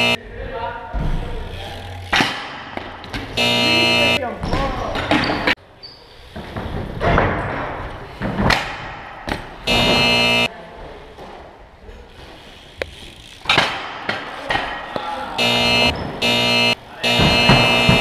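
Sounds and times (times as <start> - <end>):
bikes rolling on concrete: 0.0 - 18.0
buzzer-like blaring tone: 3.3 - 4.2, 9.7 - 10.5, 15.4 - 18.0
bike landing knocks and thuds: 6.4 - 10.1.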